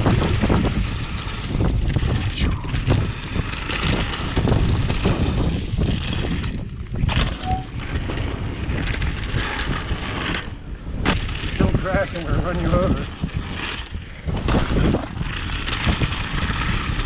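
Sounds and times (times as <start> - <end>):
mountain bike rumbling and rattling: 0.0 - 17.0
wind buffeting microphone: 0.0 - 17.0
short squeak: 7.3 - 7.8.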